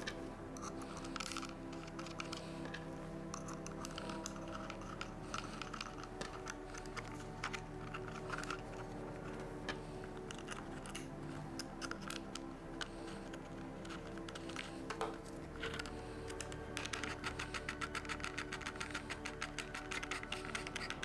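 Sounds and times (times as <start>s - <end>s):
background music: 0.0s - 21.0s
plastic parts clicking and tapping: 0.0s - 21.0s.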